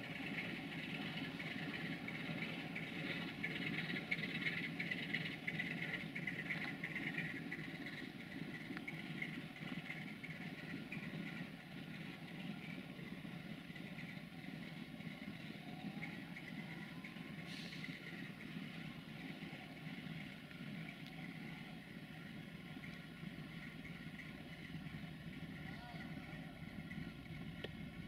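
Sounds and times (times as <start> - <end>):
diesel locomotive idling: 0.0 - 28.0
short hiss: 17.4 - 17.9.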